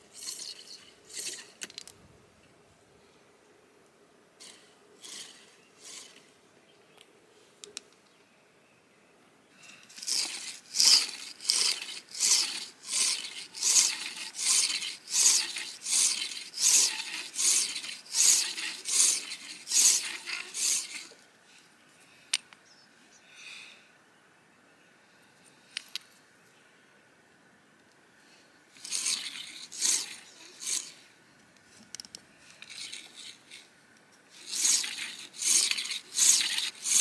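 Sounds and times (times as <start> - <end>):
drill grinding into shell: 9.9 - 21.2, 28.8 - 31.0, 32.6 - 33.7, 34.3 - 37.0.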